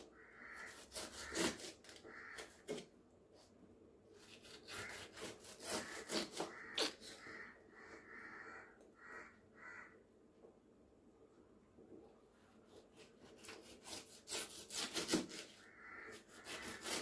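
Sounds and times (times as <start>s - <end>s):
knife slicing pineapple rind: 0.0s - 2.9s, 4.1s - 7.2s, 12.7s - 17.0s.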